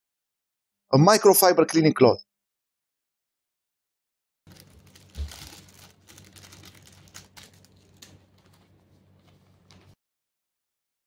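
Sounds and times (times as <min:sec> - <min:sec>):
plastic bags crinkling: 0:04.5 - 0:10.0.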